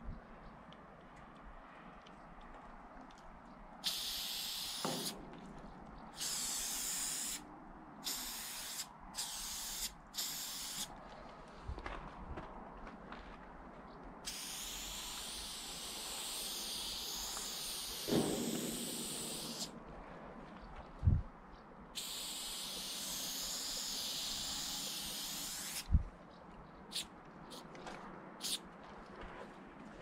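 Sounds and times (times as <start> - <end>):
spray paint can hissing: 3.8 - 5.2, 6.2 - 7.4, 8.0 - 10.9, 14.2 - 19.7, 22.0 - 25.9, 26.9 - 27.7, 28.4 - 28.6
short low thump: 18.1 - 19.1.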